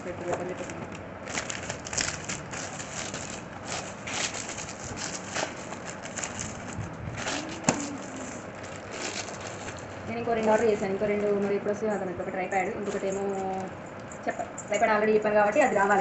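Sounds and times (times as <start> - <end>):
plastic packaging crinkling: 0.0 - 11.7, 12.8 - 14.2.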